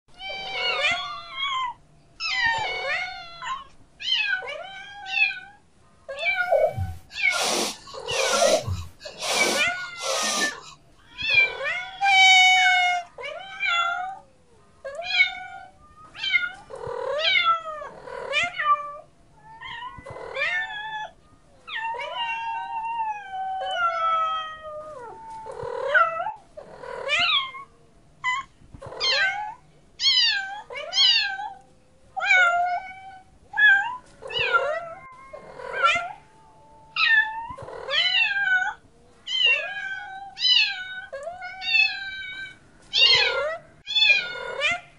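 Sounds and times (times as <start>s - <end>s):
cat meowing: 6.2s - 14.1s.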